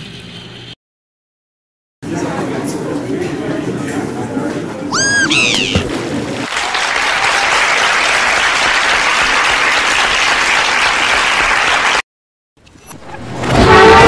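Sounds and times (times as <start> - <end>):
audience applause: 5.6 - 12.0.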